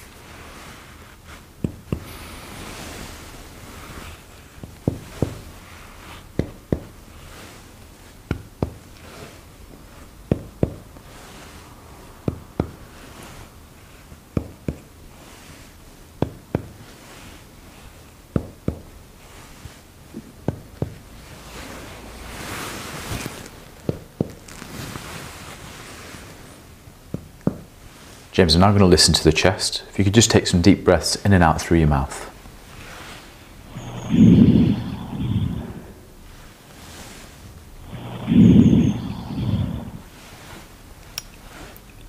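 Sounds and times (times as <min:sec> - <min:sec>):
soft rustle of movement: 0:00.0 - 0:18.2, 0:18.8 - 0:29.2, 0:31.7 - 0:42.0
finger tapping on chest: 0:01.6 - 0:02.1, 0:04.6 - 0:05.5, 0:06.4 - 0:07.0, 0:08.3 - 0:09.0, 0:10.3 - 0:11.0, 0:12.2 - 0:12.8, 0:14.4 - 0:14.9, 0:16.2 - 0:16.8, 0:18.3 - 0:18.9, 0:20.2 - 0:21.0, 0:23.8 - 0:24.4.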